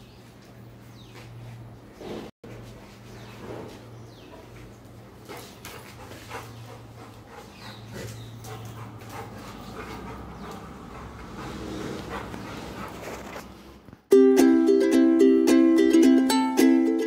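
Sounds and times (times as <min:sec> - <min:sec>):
plucked-string music: 0:14.1 - 0:17.0.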